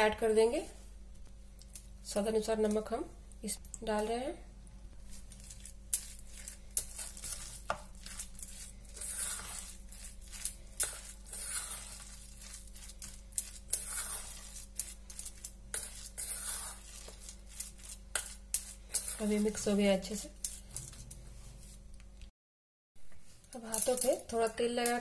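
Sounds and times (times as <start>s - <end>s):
spoon mashing paste in metal bowl: 5.1s - 21.8s.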